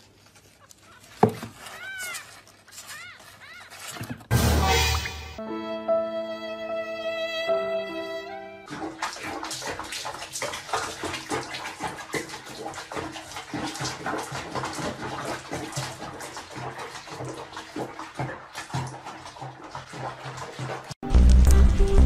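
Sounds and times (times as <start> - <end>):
water sloshing in plastic basin: 8.7 - 21.0.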